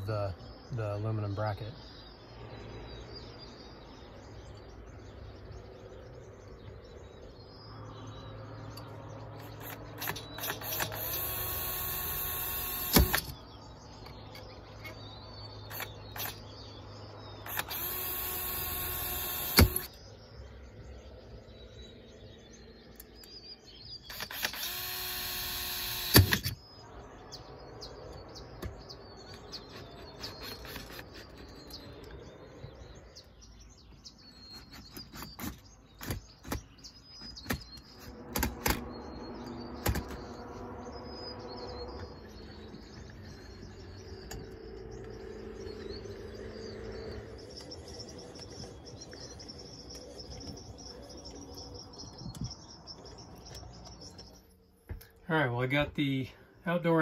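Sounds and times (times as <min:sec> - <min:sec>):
birds chirping: 0:00.0 - 0:57.0
drill sharp click: 0:09.4 - 0:13.4, 0:17.5 - 0:19.9, 0:24.1 - 0:26.6
cordless drill running: 0:09.5 - 0:13.3, 0:17.5 - 0:19.9, 0:24.1 - 0:26.4.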